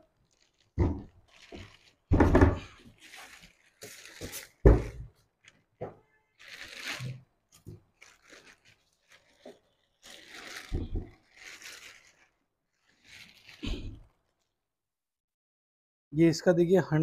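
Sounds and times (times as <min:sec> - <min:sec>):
plastic wrap crinkling: 0:00.0 - 0:14.6.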